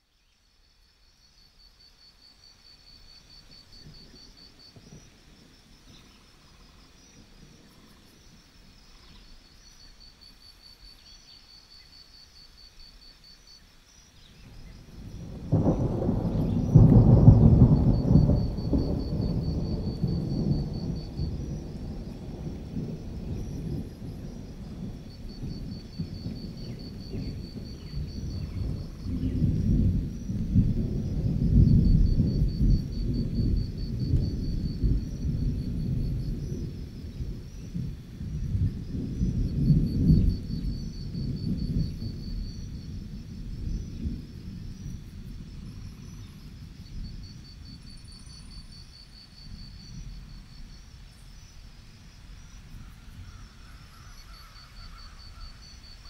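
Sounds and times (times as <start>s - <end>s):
crickets chirping: 0.0s - 56.0s
thunder rolling: 14.5s - 50.9s.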